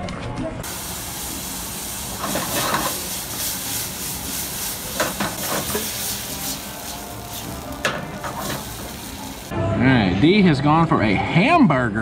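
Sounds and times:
steady hiss: 0.6 - 9.5.

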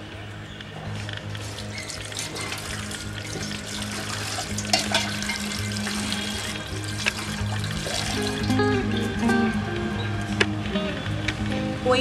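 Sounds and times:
water splashing in a steel bowl: 1.4 - 8.6
clicks and knocks against bowl: 4.7 - 5.5.

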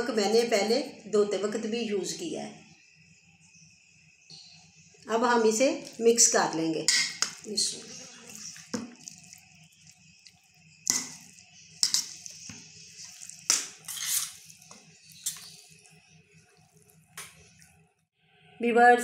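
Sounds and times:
wet squishes of meat mixed by hand: 5.8 - 6.5, 7.1 - 17.8.

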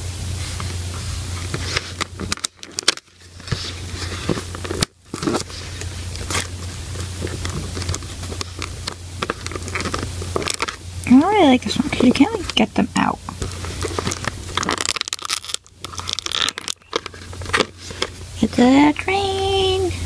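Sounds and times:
cardboard tearing and crackling: 1.4 - 10.8, 13.3 - 18.2.

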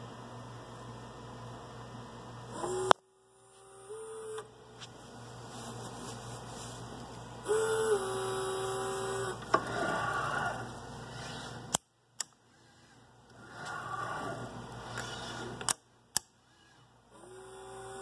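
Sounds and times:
steady mains hum: 0.0 - 18.0
robot arm motors whining: 2.5 - 2.9, 7.4 - 11.4, 12.5 - 15.8
sharp click: 15.0 - 16.3.

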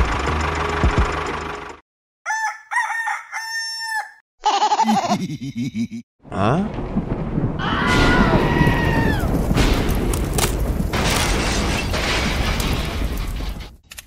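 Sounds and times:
thunderclap and rumbling boom: 6.6 - 13.8
sharp thunder cracks: 6.7 - 13.4.

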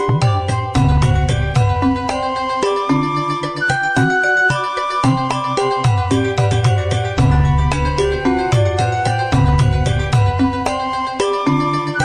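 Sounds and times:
bass line: 0.6 - 3.1, 7.1 - 12.0.

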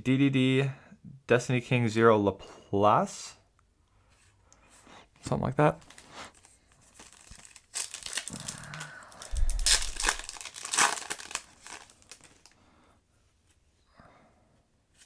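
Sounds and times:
foil pack crinkling and tearing: 5.8 - 12.6.

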